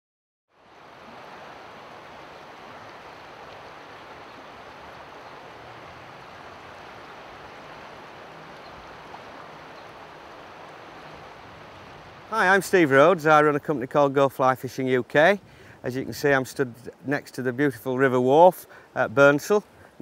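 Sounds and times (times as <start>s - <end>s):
river water rushing: 0.6s - 15.9s.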